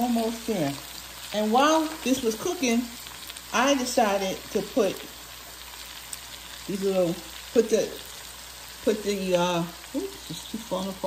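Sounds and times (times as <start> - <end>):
vegetables sizzling in a pot: 0.0 - 11.0.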